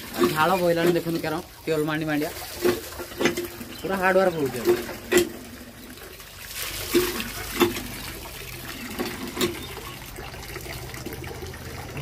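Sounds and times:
water gushing into steel bowl: 0:00.0 - 0:12.0
hand pump knocking: 0:00.1 - 0:01.3, 0:02.6 - 0:05.4.

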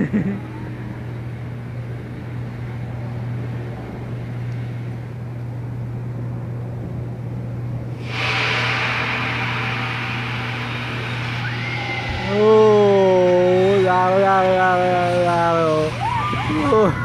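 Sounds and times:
ride machinery humming: 0:00.0 - 0:17.0
loud rushing noise: 0:07.9 - 0:17.0.

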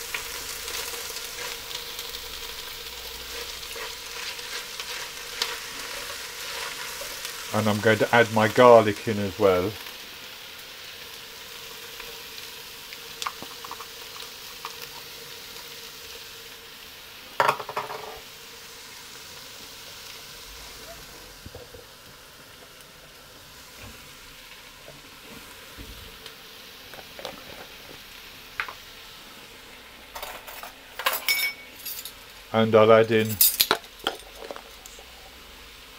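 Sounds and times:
vegetables sizzling in oil: 0:00.0 - 0:35.9
sharp ringing clink: 0:31.2 - 0:32.1.

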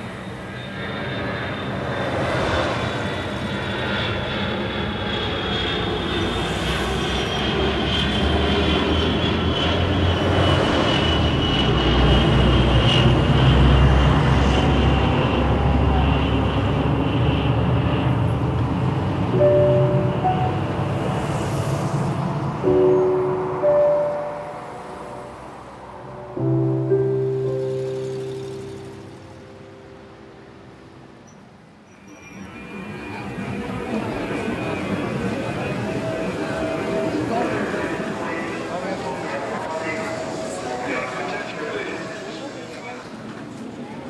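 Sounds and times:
thin high whine: 0:19.0 - 0:43.3.

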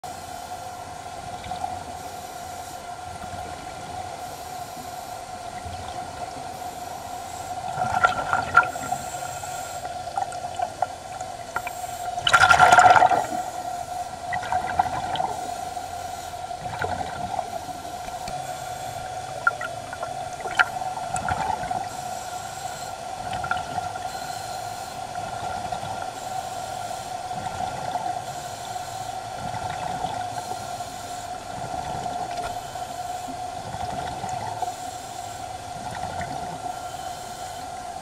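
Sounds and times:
steady high hum: 0:00.0 - 0:38.0
air bubbles gurgling: 0:07.6 - 0:09.0, 0:10.1 - 0:13.6, 0:14.3 - 0:15.4, 0:16.6 - 0:17.5, 0:19.3 - 0:21.9, 0:23.2 - 0:24.0.

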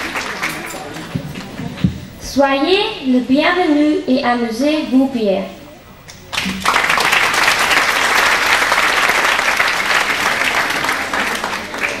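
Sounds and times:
audience applauding: 0:00.0 - 0:01.6, 0:06.3 - 0:12.0.

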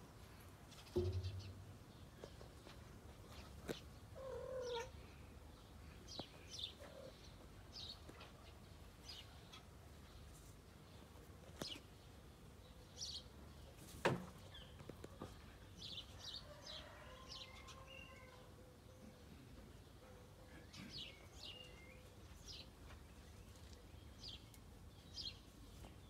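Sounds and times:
small birds chirping: 0:00.2 - 0:18.4, 0:20.5 - 0:26.0
sharp knock: 0:01.0 - 0:01.6
cat meowing: 0:04.2 - 0:04.9.

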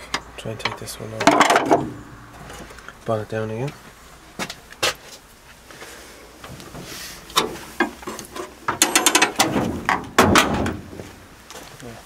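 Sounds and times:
tools clicking and knocking on metal: 0:00.0 - 0:01.9, 0:07.4 - 0:10.8.

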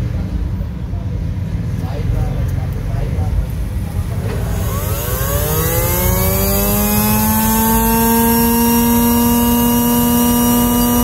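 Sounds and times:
electric motor whine: 0:04.1 - 0:11.0.

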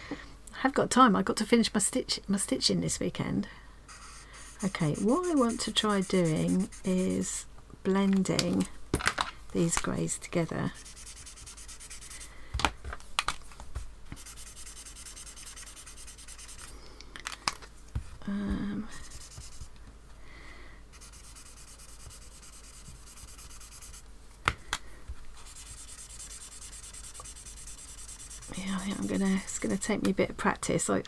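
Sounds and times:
marker nibs scratching on paper: 0:03.9 - 0:07.4, 0:10.6 - 0:12.3, 0:14.1 - 0:16.7, 0:19.0 - 0:19.7, 0:21.0 - 0:24.0, 0:25.4 - 0:29.8.

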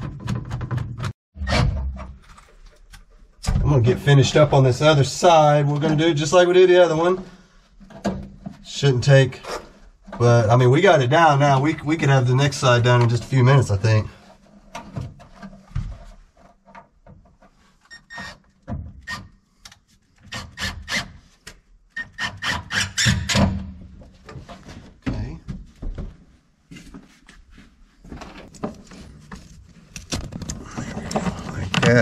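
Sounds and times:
clicks taps and scraping: 0:24.0 - 0:32.0.

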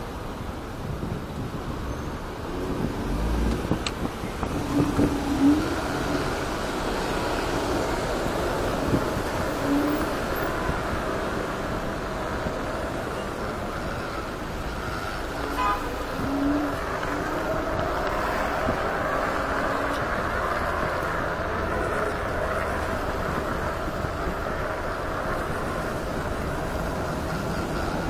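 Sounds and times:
wind and road noise: 0:00.0 - 0:28.0
short horn toot: 0:15.4 - 0:16.7.

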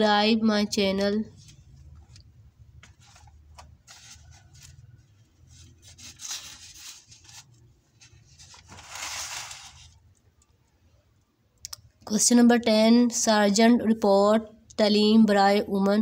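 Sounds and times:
book pages rustling: 0:01.3 - 0:10.1.

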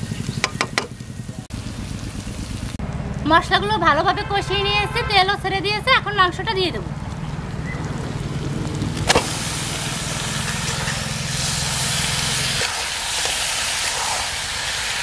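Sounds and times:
chicken sizzling in hot oil: 0:00.0 - 0:02.8, 0:07.3 - 0:15.0.

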